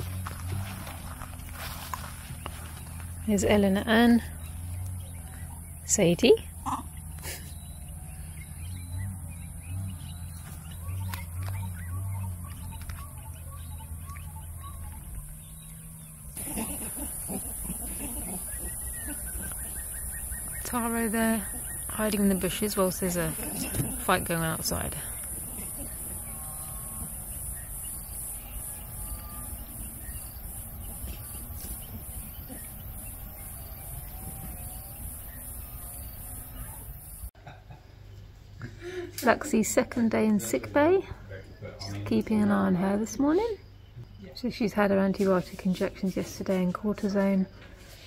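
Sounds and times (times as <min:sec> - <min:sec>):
faint distant calls: 0:00.0 - 0:37.3
pulsing insect drone: 0:06.4 - 0:37.3.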